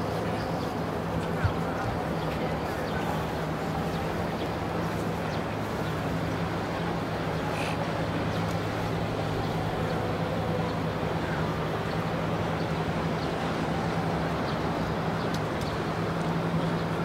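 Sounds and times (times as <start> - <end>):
boat engine humming: 0.0 - 17.0
water and air noise: 0.0 - 17.0.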